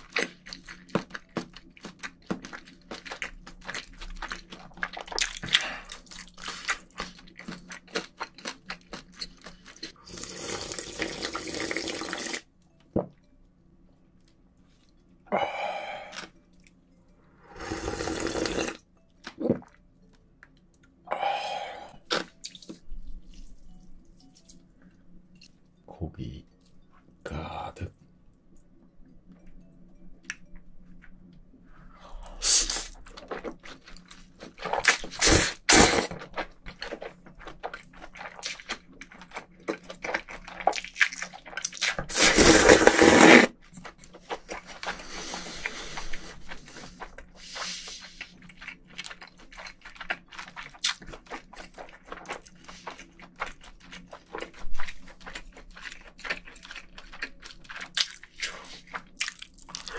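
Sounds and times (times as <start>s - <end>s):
chewing: 0.0s - 11.7s, 17.4s - 25.6s, 29.3s - 59.9s
loud slurps: 17.5s - 18.8s, 35.1s - 36.2s, 42.1s - 43.5s.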